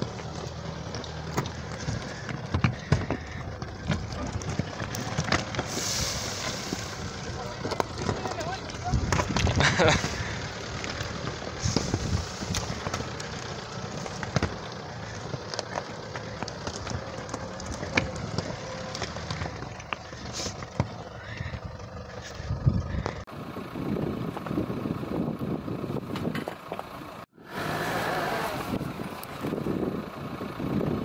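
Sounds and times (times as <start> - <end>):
stones crunching under tyres: 0.0 - 23.4, 24.1 - 24.7, 28.6 - 29.9
engine running at low speed: 0.0 - 31.0.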